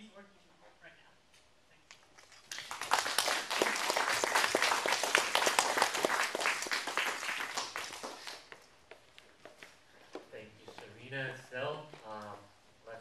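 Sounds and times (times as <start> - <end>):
audience applauding: 2.3 - 8.6.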